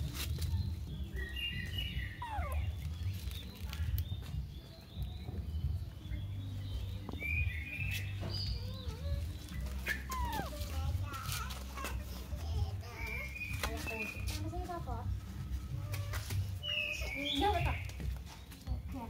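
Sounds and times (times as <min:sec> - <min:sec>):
baby monkey high calls: 0:01.1 - 0:04.0, 0:07.2 - 0:14.4.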